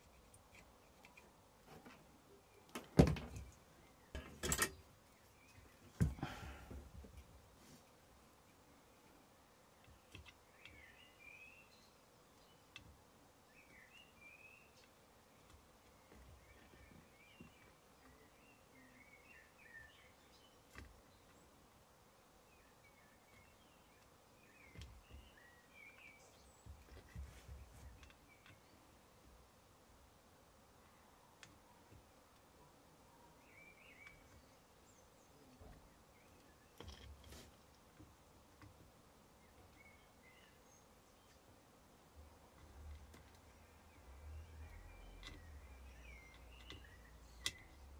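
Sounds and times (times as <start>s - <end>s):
faint bird chirp: 8.4s - 12.8s, 13.4s - 21.6s, 22.4s - 29.1s, 30.8s - 47.9s
faint chirp: 15.9s - 20.6s, 42.6s - 47.9s
soft clicks: 45.1s - 47.9s.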